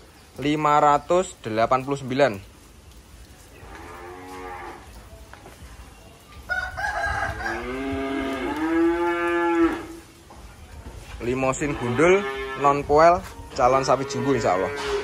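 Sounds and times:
cattle mooing: 0:07.4 - 0:10.0, 0:11.6 - 0:12.8, 0:13.7 - 0:15.0.

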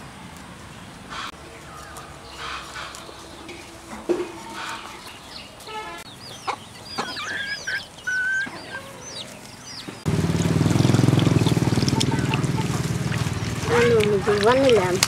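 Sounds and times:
chickens chirping: 0:01.1 - 0:15.0
hand washing potatoes in water: 0:10.4 - 0:15.0.

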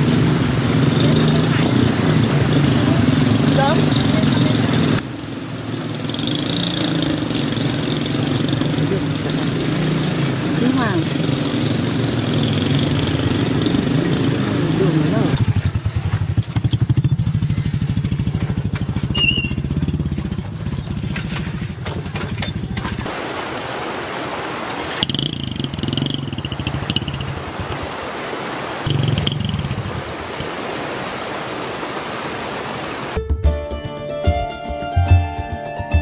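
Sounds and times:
motorcycle engine labouring uphill: 0:00.0 - 0:23.1, 0:24.9 - 0:27.9, 0:28.9 - 0:30.6
motorcycles on rocky track: 0:00.0 - 0:23.3, 0:24.2 - 0:33.2.

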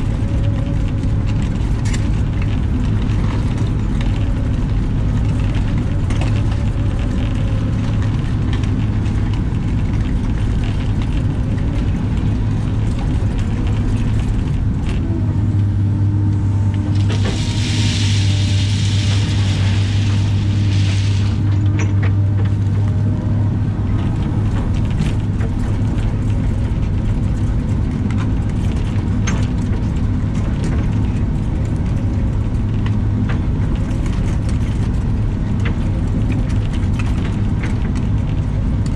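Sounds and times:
excavator diesel engine running: 0:00.0 - 0:38.9
hiss: 0:17.0 - 0:21.6.

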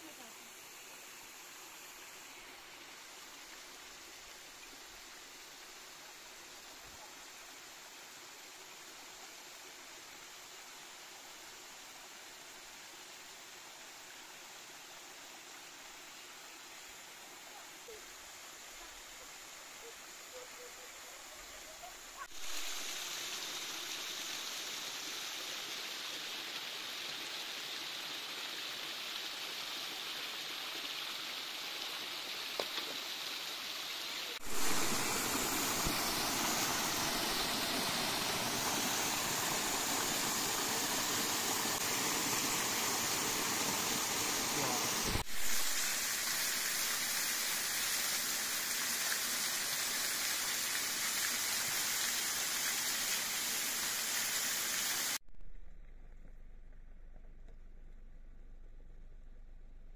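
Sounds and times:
waterfall rushing: 0:34.3 - 0:55.2.

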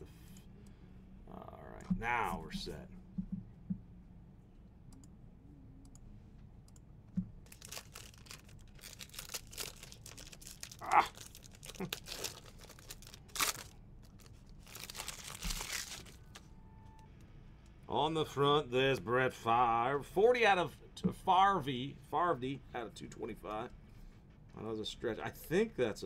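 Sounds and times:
foil wrapper tearing and crinkling: 0:07.4 - 0:16.4.

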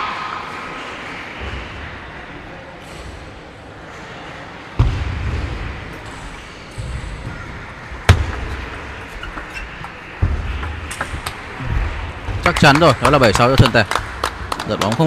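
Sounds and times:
sports hall noise: 0:00.0 - 0:15.0.

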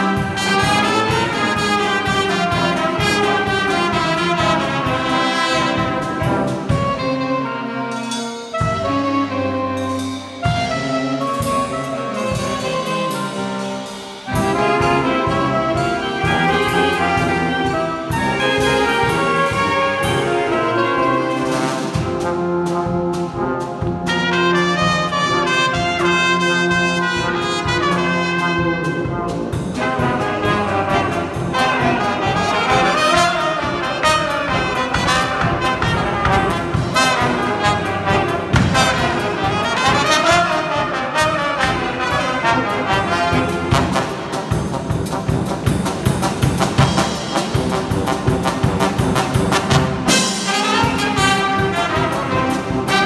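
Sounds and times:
street brass band playing: 0:00.0 - 0:53.0
drum beat: 0:14.3 - 0:53.0.

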